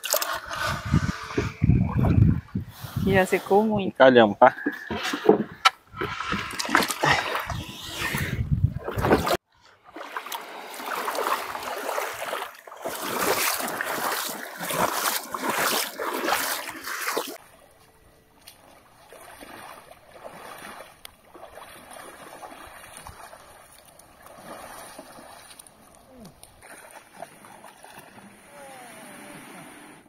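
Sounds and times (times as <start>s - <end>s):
water splashing around canoe: 0.0s - 3.5s, 4.5s - 30.0s
water and air background: 0.0s - 30.0s
faint small splashes: 8.8s - 17.5s, 18.4s - 29.2s.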